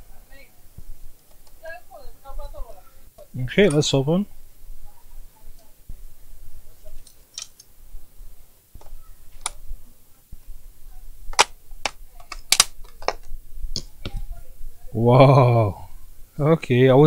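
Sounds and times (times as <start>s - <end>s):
plastic clips snapping loose: 9.4s - 9.6s, 11.4s - 13.2s.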